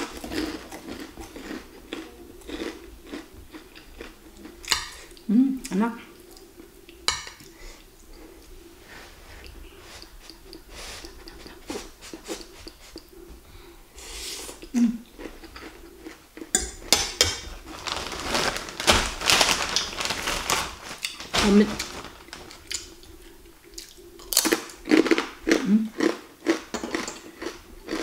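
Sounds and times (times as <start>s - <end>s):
plastic bag crinkling: 17.5s - 23.0s.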